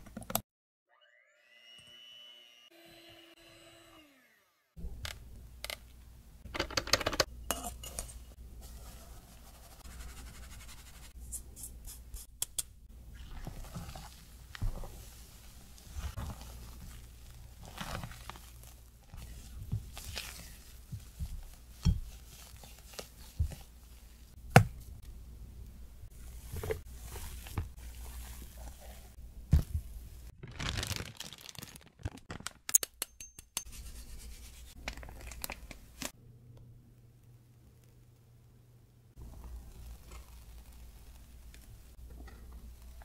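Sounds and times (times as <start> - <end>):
plastic crinkling: 15.6 - 23.4, 26.5 - 32.7, 34.8 - 36.1.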